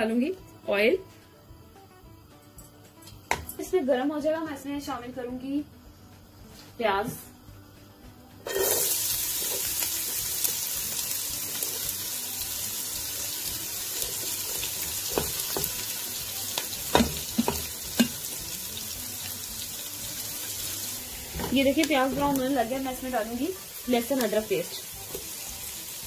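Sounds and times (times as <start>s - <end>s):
onion sizzling in frying pan: 8.4s - 26.0s.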